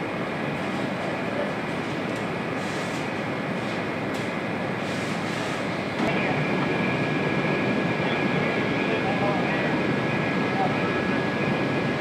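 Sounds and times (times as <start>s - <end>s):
faint high whine: 6.0s - 12.0s.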